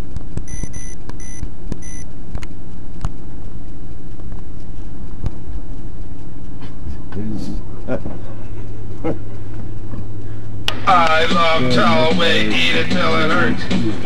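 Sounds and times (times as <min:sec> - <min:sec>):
short electronic beeps: 0:00.5 - 0:02.1.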